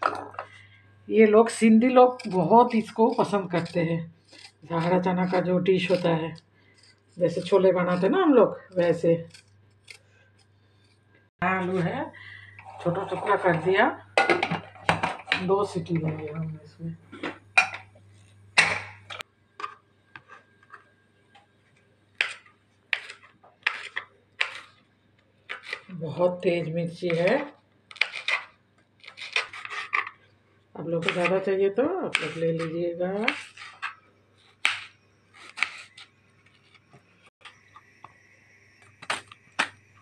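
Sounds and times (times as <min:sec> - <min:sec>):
knife slicing on chopping mat: 0:33.2 - 0:33.9, 0:34.6 - 0:36.1.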